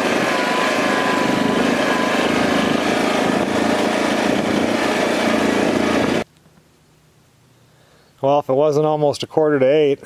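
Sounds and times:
wind rushing: 0.0 - 6.2
quad bike engine drone: 0.0 - 6.3.

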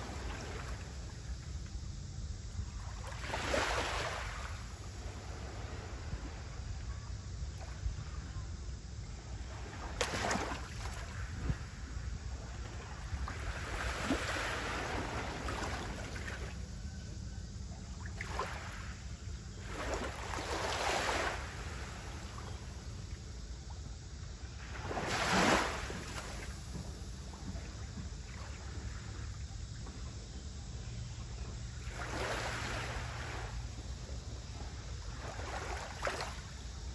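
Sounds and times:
small waves washing on shore: 0.0 - 1.4, 2.7 - 6.7, 9.4 - 16.6, 18.0 - 19.0, 19.6 - 23.2, 24.5 - 29.4, 31.8 - 36.9.

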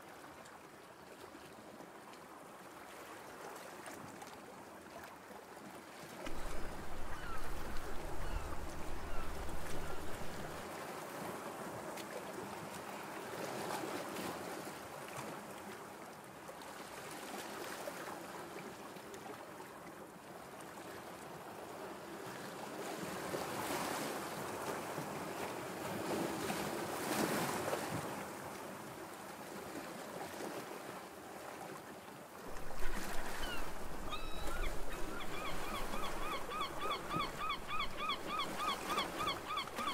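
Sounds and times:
water lapping: 6.0 - 10.8, 32.4 - 39.9
wind rumbling on microphone: 6.3 - 10.6.

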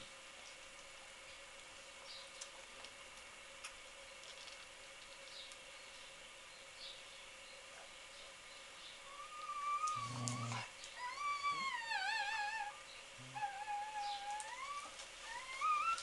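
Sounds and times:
dog whining: 9.1 - 16.0.

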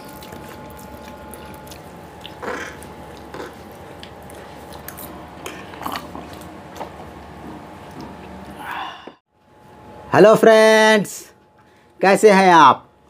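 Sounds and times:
noodles being slurped: 0.0 - 7.0
food chewing: 0.0 - 8.6
faint steady hum: 0.0 - 13.0.

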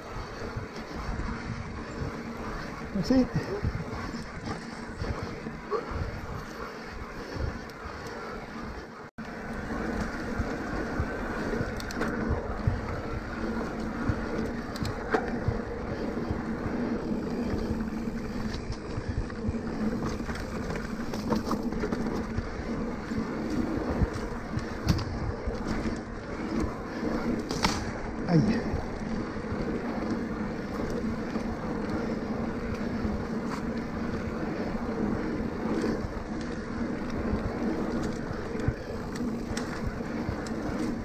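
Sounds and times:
bike clicks and rattles: 0.0 - 41.0
tyre rolling noise: 0.0 - 41.0
wind on microphone: 0.0 - 41.0.

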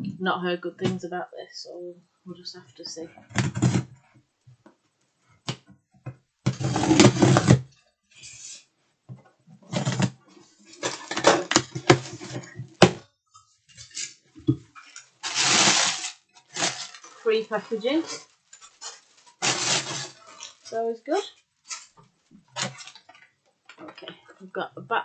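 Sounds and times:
cardboard rustling and scraping: 3.3 - 3.9, 6.5 - 7.7, 9.7 - 13.0, 13.7 - 20.8, 21.7 - 23.2.

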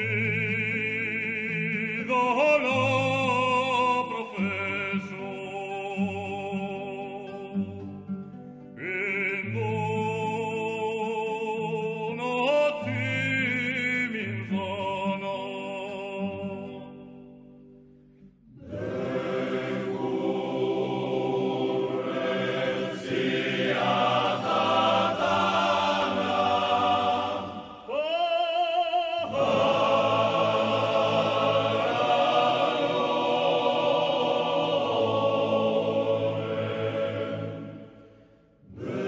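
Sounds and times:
lone voice singing with vibrato: 0.0 - 8.0, 8.8 - 17.4, 18.6 - 37.9
group of voices singing chords: 18.4 - 28.3, 29.2 - 39.0.

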